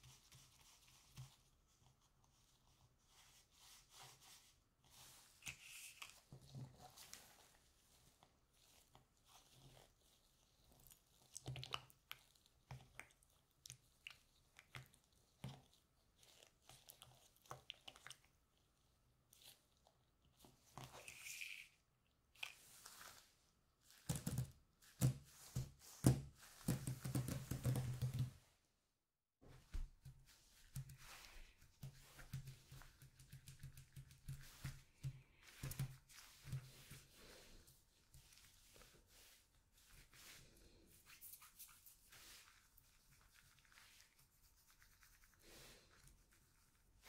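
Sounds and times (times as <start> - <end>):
faint rustles and taps: 0.0 - 2.5, 22.5 - 28.5, 29.4 - 37.2.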